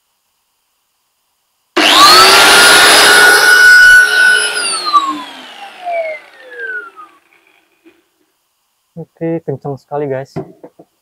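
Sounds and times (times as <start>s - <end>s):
angle grinder whining: 1.8s - 7.9s.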